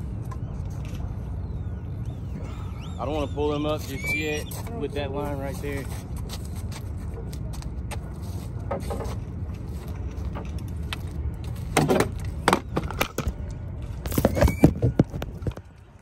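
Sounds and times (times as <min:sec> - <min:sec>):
steady low rumble: 0:04.6 - 0:14.2.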